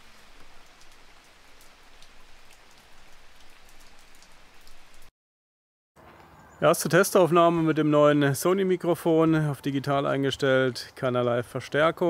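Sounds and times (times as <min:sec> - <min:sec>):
steady rain falling: 0:00.0 - 0:05.1.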